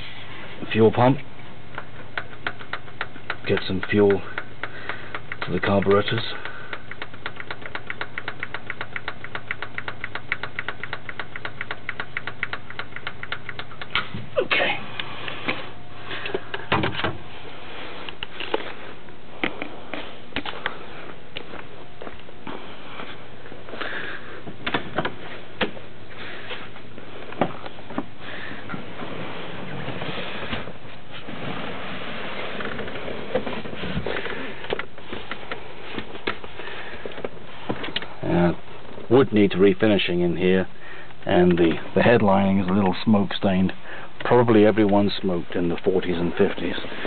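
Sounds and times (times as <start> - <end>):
sharp clicks and knocks: 1.2 - 14.3, 24.5 - 25.8, 32.5 - 38.1
fuel pump ticking rapidly: 1.6 - 14.1.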